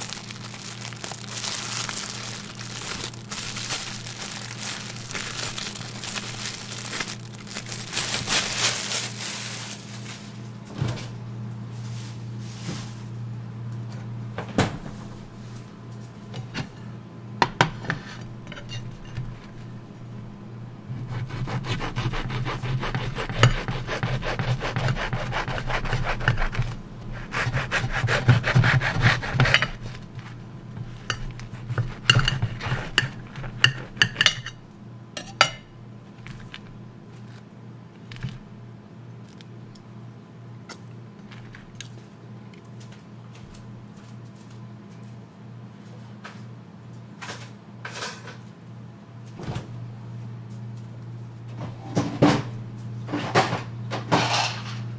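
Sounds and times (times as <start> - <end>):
steady low hum: 0.0 - 46.8
knife sawing through bread: 20.9 - 30.0, 31.3 - 34.0.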